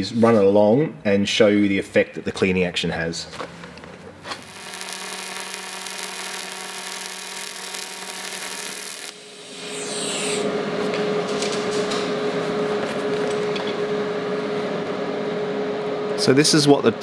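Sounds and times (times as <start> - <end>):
welding arc buzzing and hissing: 4.2 - 12.8
humming whir: 4.4 - 16.2.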